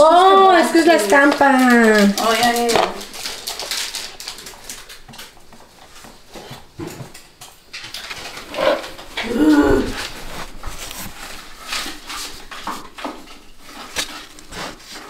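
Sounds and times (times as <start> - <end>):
short falling cry: 9.2 - 10.0.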